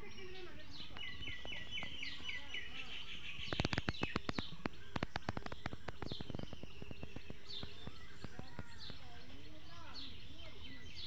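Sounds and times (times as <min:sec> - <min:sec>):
birds chirping: 0:00.0 - 0:11.0
irregular sharp clicks: 0:03.4 - 0:09.0.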